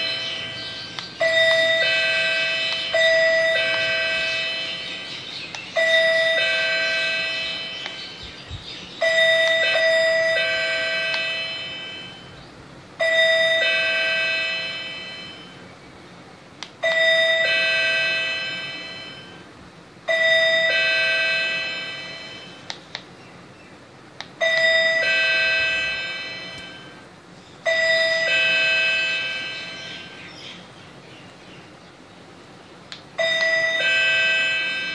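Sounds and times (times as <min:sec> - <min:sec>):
two-note electronic chime: 0:27.8 - 0:30.3.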